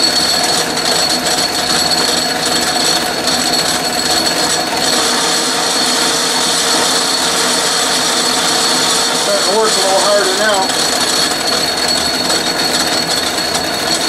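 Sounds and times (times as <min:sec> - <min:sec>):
metal lathe whirring: 0:00.0 - 0:14.0
high whine: 0:06.0 - 0:12.4.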